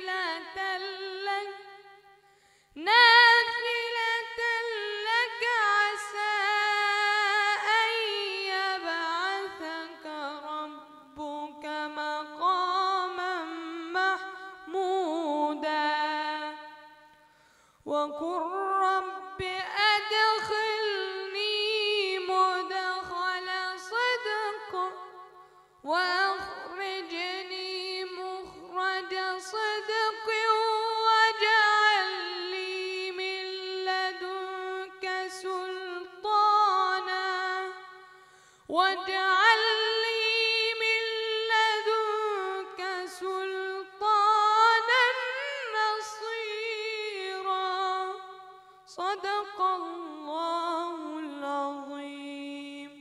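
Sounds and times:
boy chanting melodically: 0.0s - 1.8s, 2.8s - 16.7s, 17.9s - 38.0s.

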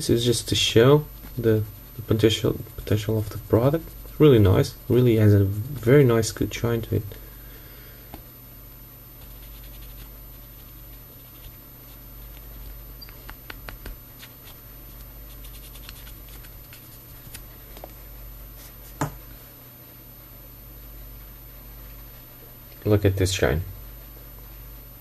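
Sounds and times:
steady low hum: 0.0s - 25.0s
cotton swab scratching: 9.2s - 17.5s.

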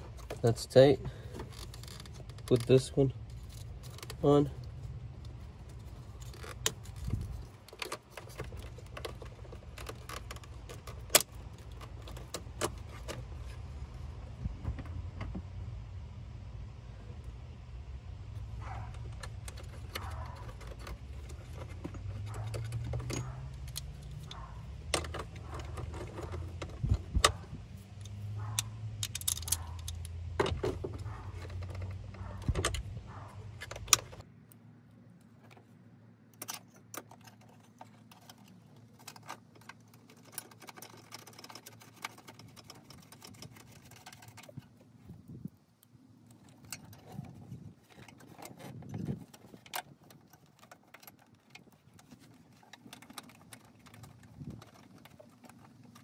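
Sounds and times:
plastic parts clicking and knocking: 0.0s - 13.6s, 18.6s - 34.2s, 36.4s - 44.9s, 46.2s - 56.0s
low steady rumble: 0.0s - 36.5s.

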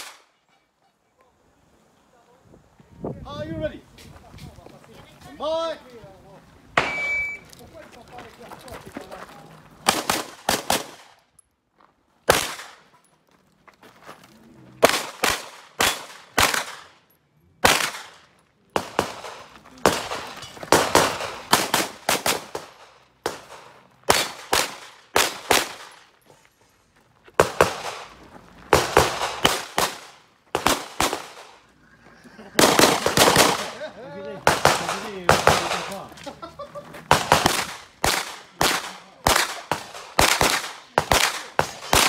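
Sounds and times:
pistol shots: 6.8s - 7.4s, 9.8s - 11.2s, 12.3s - 12.9s, 14.8s - 17.0s, 17.6s - 26.1s, 27.4s - 31.6s, 32.6s - 33.8s, 34.4s - 36.0s, 37.1s - 42.0s.

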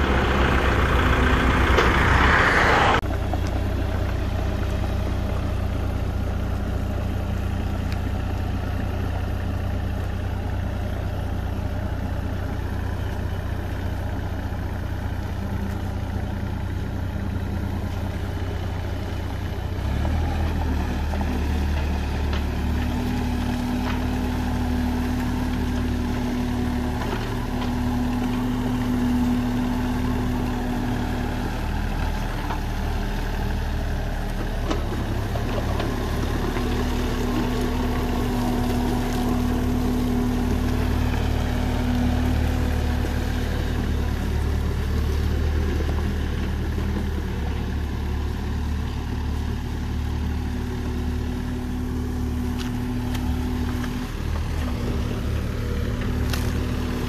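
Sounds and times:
diesel engines running: 0.0s - 57.0s
excavator digging: 19.3s - 57.0s.

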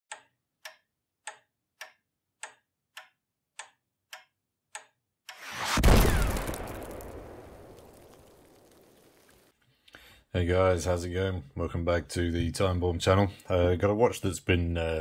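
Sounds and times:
clock ticking: 0.1s - 5.5s
explosion boom: 5.4s - 9.4s.

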